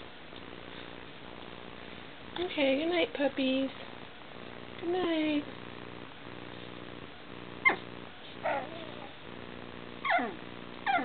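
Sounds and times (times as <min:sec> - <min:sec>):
puppy whimpering: 0:07.6 - 0:09.2, 0:10.0 - 0:11.0.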